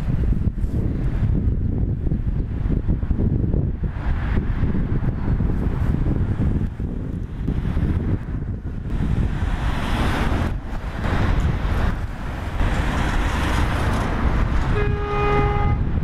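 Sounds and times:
railcar engine and wheel rumble: 0.0 - 16.0
wind buffeting microphone: 0.0 - 16.0.

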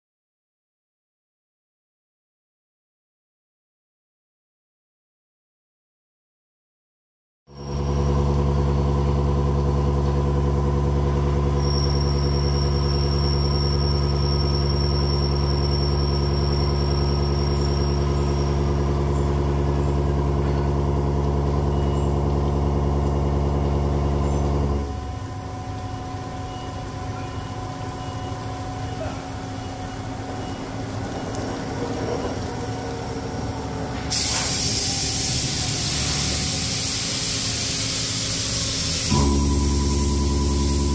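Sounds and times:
mill machining hum: 7.5 - 40.9
quieter machine running: 7.5 - 40.9
thin high whine: 10.4 - 40.9.

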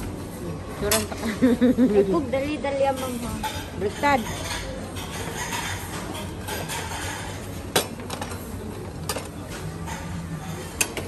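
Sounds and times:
crockery and cutlery clinking: 2.9 - 11.0.

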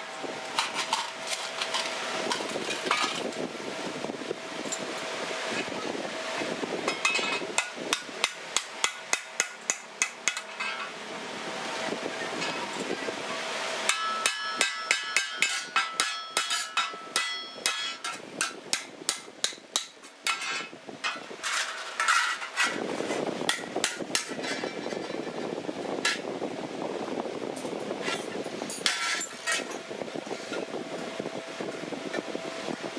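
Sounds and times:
hammer striking metal on anvil: 13.9 - 21.2.

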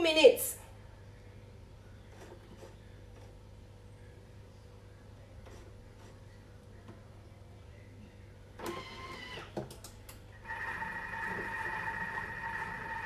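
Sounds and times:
kitchen machine motor whine: 10.4 - 13.0.

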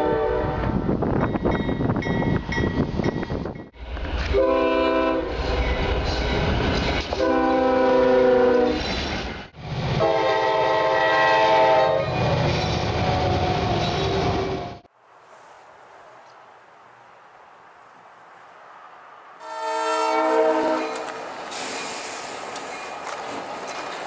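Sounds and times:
locomotive air horn blasts: 0.0 - 0.8, 4.3 - 5.3, 7.2 - 8.8, 10.0 - 12.4, 19.4 - 21.2
train wheel noise: 0.7 - 14.9, 20.4 - 24.0.

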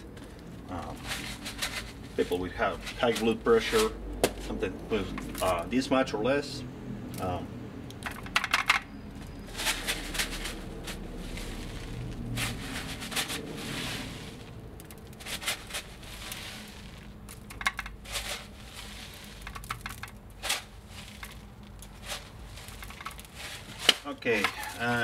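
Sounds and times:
salt grains sprinkling onto meat: 9.6 - 25.0.

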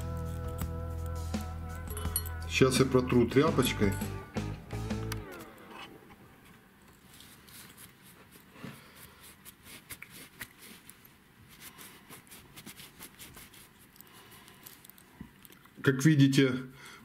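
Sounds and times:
cloth rubbing metal lure: 6.9 - 15.5.

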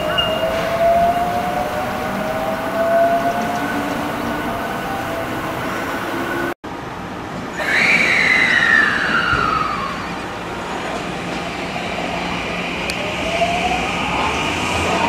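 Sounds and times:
train motors whining: 0.0 - 6.6
train rumble: 0.0 - 15.0.

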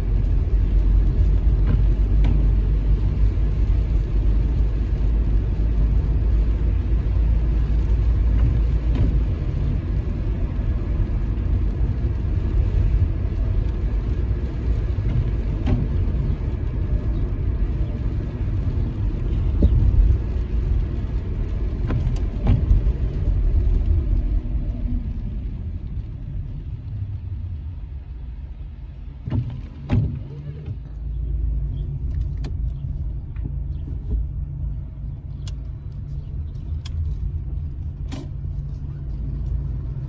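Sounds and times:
car engine and tyre noise: 0.0 - 40.0.

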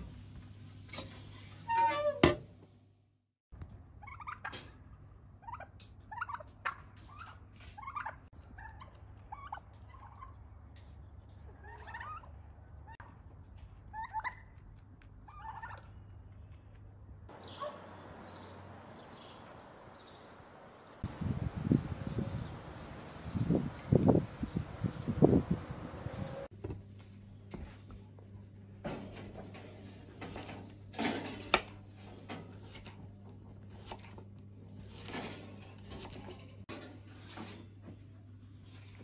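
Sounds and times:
turkey gobbling: 5.4 - 6.9, 7.8 - 10.4, 11.6 - 12.3, 14.0 - 14.4, 15.3 - 15.8
small birds chirping: 13.9 - 26.5.

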